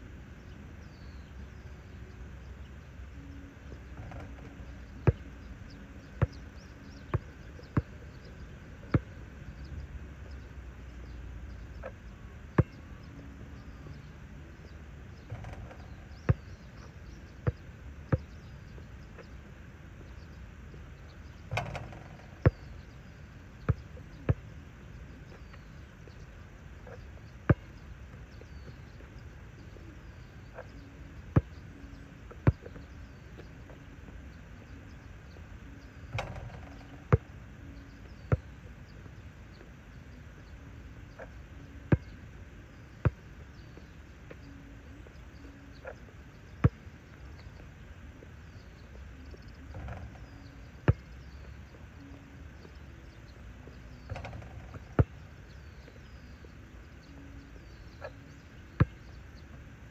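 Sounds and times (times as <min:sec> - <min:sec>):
faint bird chirps: 0:00.1 - 0:59.9
basketball bouncing on asphalt: 0:05.0 - 0:05.3, 0:06.1 - 0:08.3, 0:12.6 - 0:12.8, 0:15.2 - 0:16.6, 0:17.4 - 0:18.4, 0:21.5 - 0:22.7, 0:36.1 - 0:37.3, 0:49.7 - 0:50.3, 0:54.1 - 0:55.6.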